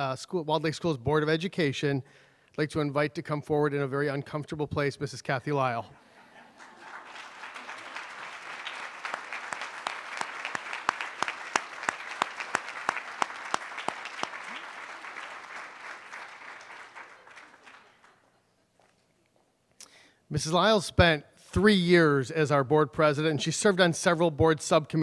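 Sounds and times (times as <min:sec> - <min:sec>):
audience applauding: 0:06.4 - 0:18.4
loud close hand claps: 0:06.6 - 0:18.2.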